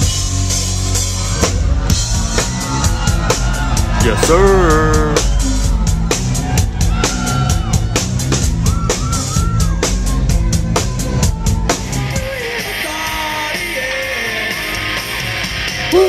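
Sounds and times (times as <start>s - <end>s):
live rock band: 0.0s - 16.0s
drum kit beat: 3.9s - 5.6s.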